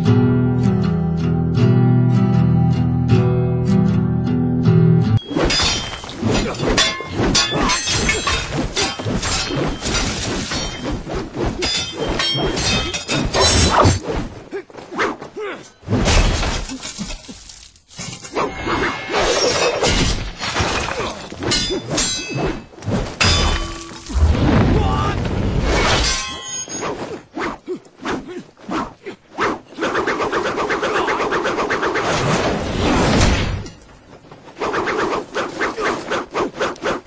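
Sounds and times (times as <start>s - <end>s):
metal blades clashing: 5.2s - 14.0s, 18.0s - 24.1s, 25.8s - 27.0s.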